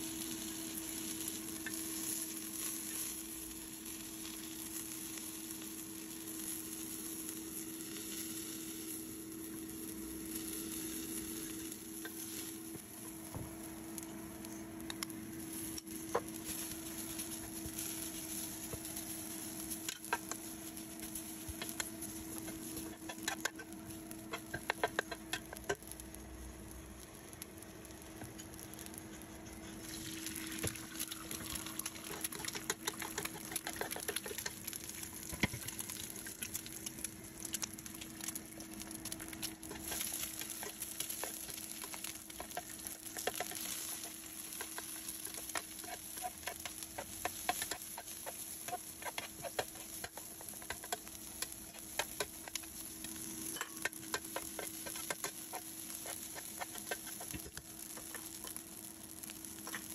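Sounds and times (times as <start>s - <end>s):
egg sizzling in hot oil: 0.0s - 59.9s.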